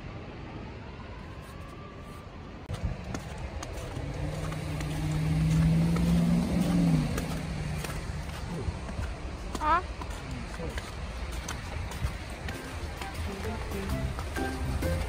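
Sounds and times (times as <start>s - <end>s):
traffic rumble: 0.0s - 15.0s
vehicle engine passing: 2.8s - 9.3s.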